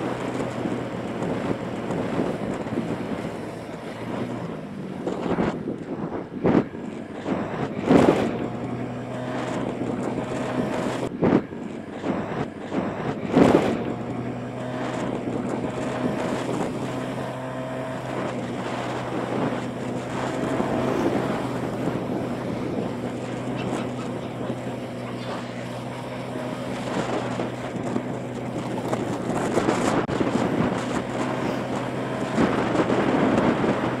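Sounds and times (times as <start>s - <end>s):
motorbike engine running: 0.0s - 34.0s
wind rushing over microphone: 0.0s - 34.0s.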